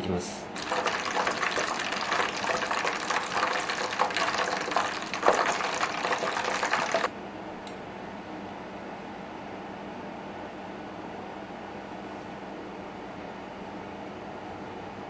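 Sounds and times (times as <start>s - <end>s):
steady hum: 0.0s - 7.8s
oil crackling in a pot: 0.6s - 7.1s.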